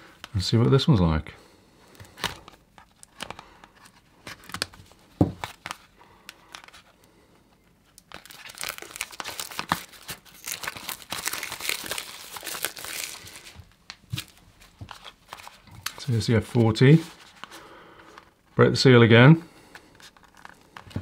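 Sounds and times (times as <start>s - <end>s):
plastic wrap crinkling: 7.8s - 18.3s.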